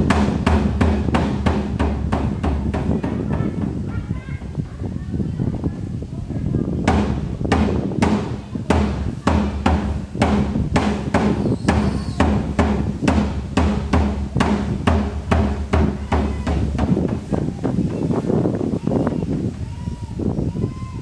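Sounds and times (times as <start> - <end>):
steady drum beat: 0.0 - 4.2, 6.8 - 18.5.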